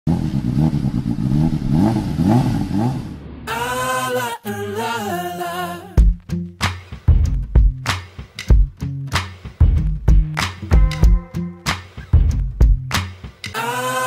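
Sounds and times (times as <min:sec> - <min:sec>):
held sung vocal line: 0:03.5 - 0:06.0, 0:13.5 - 0:14.0
drum beat with deep kicks: 0:06.0 - 0:13.6.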